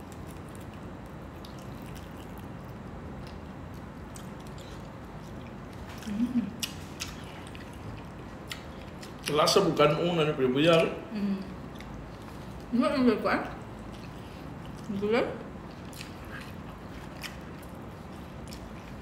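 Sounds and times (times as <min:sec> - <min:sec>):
chewing and wet lip smacks: 0:00.0 - 0:09.4, 0:15.7 - 0:19.0
steady low hum: 0:00.0 - 0:19.0.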